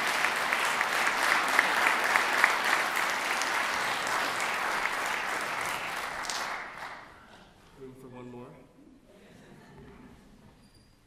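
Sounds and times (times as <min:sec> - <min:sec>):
audience applauding: 0:00.0 - 0:07.2.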